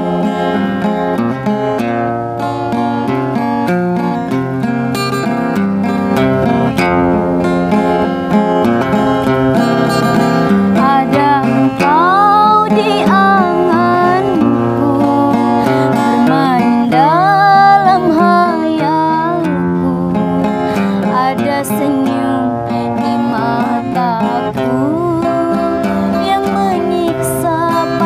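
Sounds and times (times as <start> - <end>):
acoustic guitar strumming: 0.0 - 28.0
woman singing: 10.4 - 28.0.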